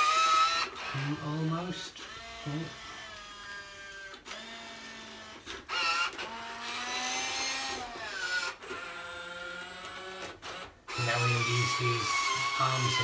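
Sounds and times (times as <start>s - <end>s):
toy robot motors whining: 0.0s - 13.0s.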